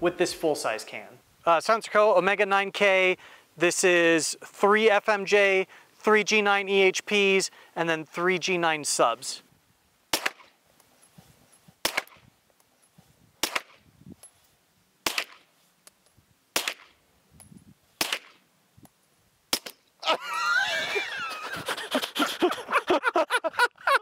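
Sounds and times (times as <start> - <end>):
suppressed pistol shots: 10.1 - 10.5, 11.8 - 12.2, 13.4 - 13.8, 15.0 - 15.4, 16.5 - 16.9, 18.0 - 18.4, 19.5 - 19.8.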